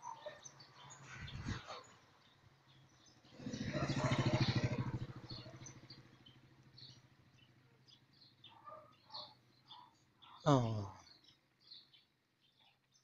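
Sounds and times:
motorbike engine passing: 1.0s - 9.7s.

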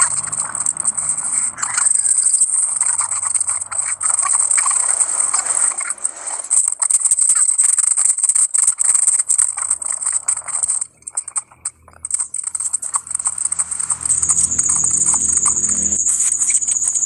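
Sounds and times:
high-pitched hiss: 13.4s - 17.0s.

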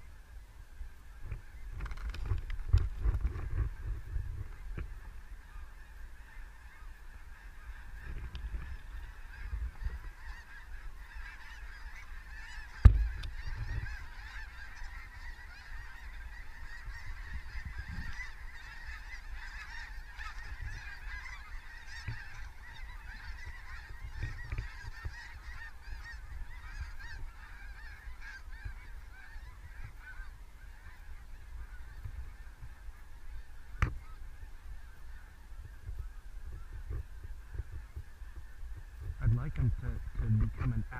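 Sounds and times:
flock of geese honking: 0.0s - 40.9s
sharp thump: 12.8s - 13.2s.

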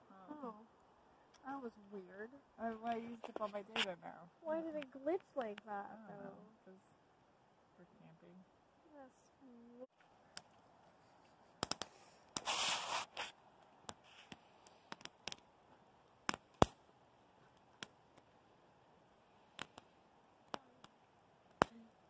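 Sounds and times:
campfire crackling and popping: 4.6s - 5.9s, 10.0s - 22.0s
rustling scraping rush: 12.4s - 13.3s.

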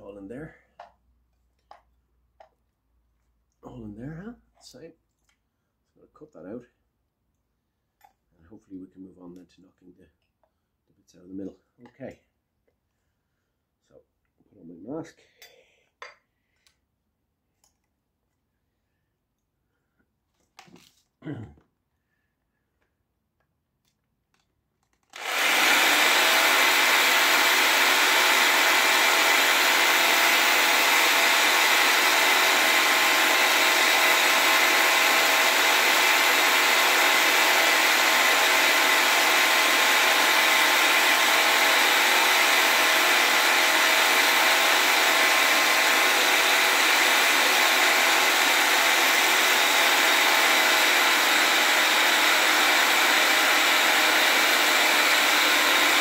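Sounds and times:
power tool cutting metal whine: 25.2s - 56.0s.

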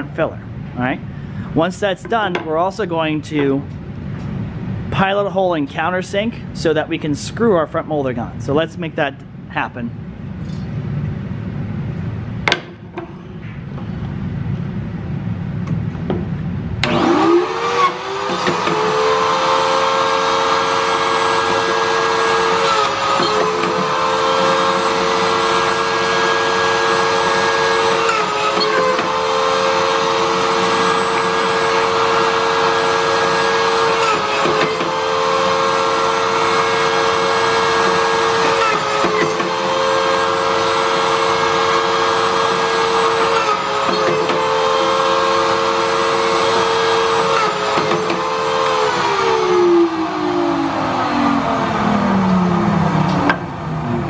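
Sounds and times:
pocket-hole machine motor: 16.8s - 53.4s.

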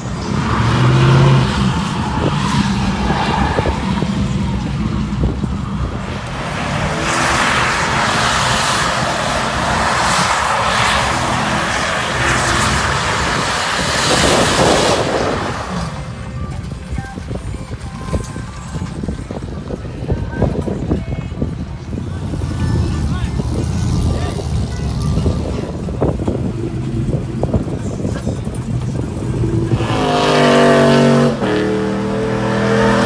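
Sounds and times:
spinning tires hissing: 0.0s - 16.3s, 22.2s - 33.0s
engine revving hard: 29.3s - 33.0s.

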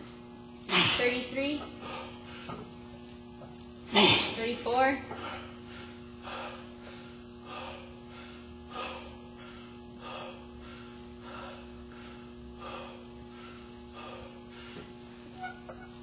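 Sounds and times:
electrical hum: 0.0s - 16.0s
man breathing hard: 1.8s - 2.7s, 5.2s - 15.3s.

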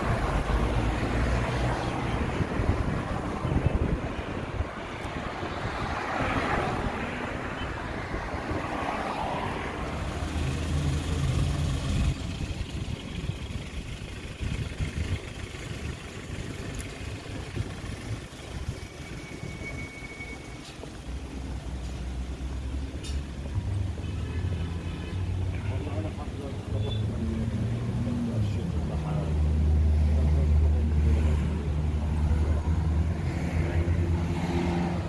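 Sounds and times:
cars driving past: 0.0s - 35.0s
wind rumble on microphone: 2.1s - 7.0s.

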